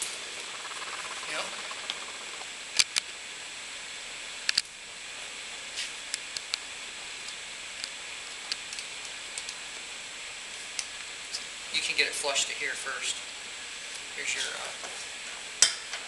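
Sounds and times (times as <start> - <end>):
faint high whine: 0.0 - 5.4
steady hiss: 0.0 - 15.6.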